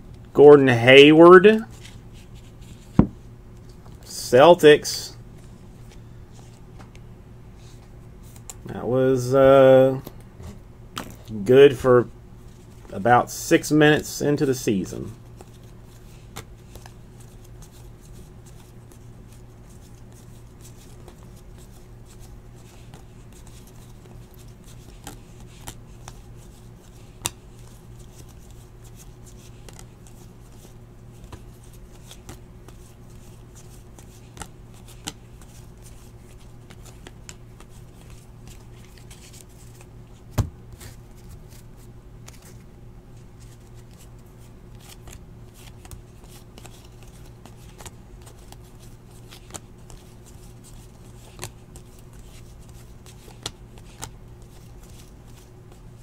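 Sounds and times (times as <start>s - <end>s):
steady low hum: 0.0s - 56.0s
trading cards being flipped: 1.6s - 4.1s, 15.2s - 56.0s.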